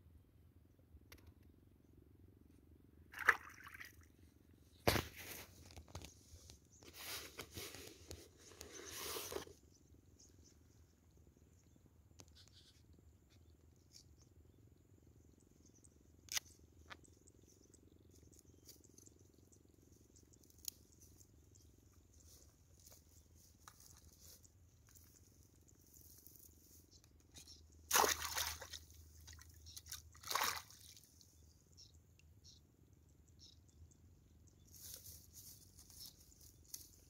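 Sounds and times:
brief rustle: 4.9s - 9.6s.

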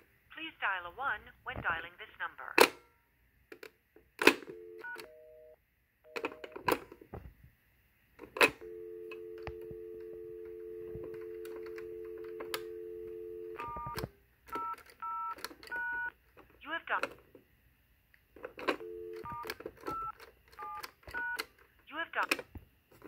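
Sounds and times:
telephone dial tone: 4.2s - 7.0s, 8.3s - 16.1s, 18.4s - 21.5s
touch-tone key beeps: 4.6s - 5.3s, 18.8s - 21.4s.

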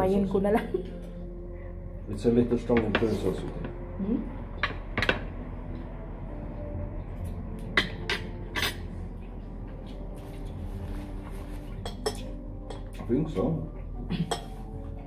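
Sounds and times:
low steady hum: 0.0s - 13.0s
cutlery clinking on plates: 7.7s - 8.9s, 11.8s - 13.0s, 14.2s - 14.6s.

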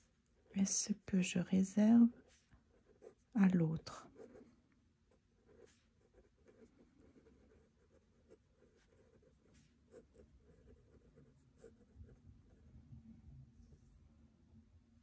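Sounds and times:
pen scratching on paper: 2.1s - 3.4s, 4.1s - 4.4s, 5.1s - 12.6s.

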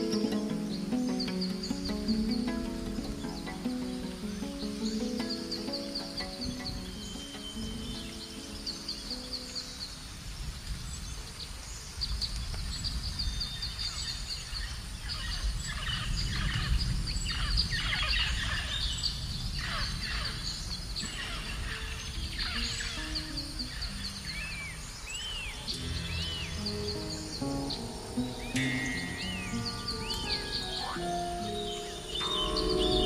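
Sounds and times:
low held music notes: 0.0s - 10.5s, 21.0s - 33.0s
birds chirping: 0.0s - 33.0s
low rumbling background: 24.3s - 33.0s
bird calls sliding downward: 25.6s - 33.0s.

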